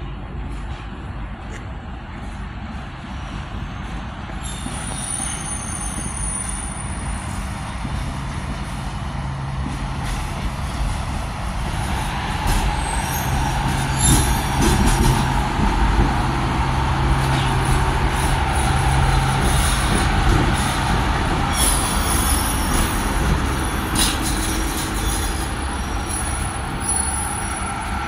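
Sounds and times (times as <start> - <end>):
diesel railcar engine running: 0.0 - 28.0
sharp knocks from train wheels: 11.7 - 16.4, 17.1 - 27.0.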